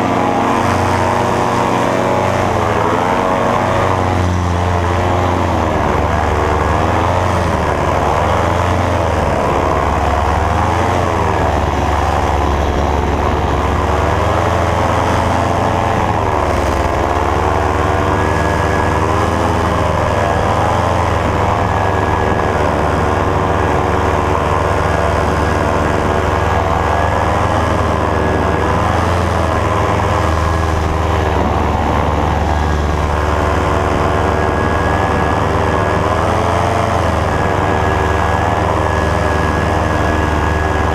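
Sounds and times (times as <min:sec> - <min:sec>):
paramotor engine and propeller: 0:00.0 - 0:40.9.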